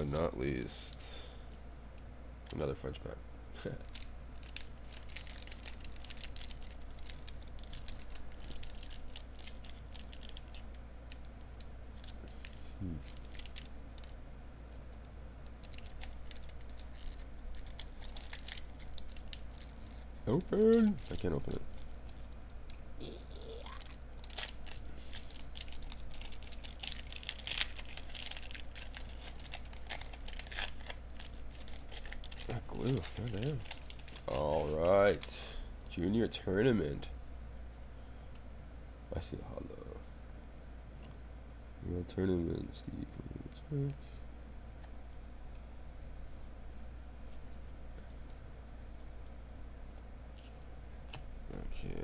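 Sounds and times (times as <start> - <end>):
wrapper crinkling: 3.6 - 14.2, 15.4 - 22.8, 23.4 - 35.3.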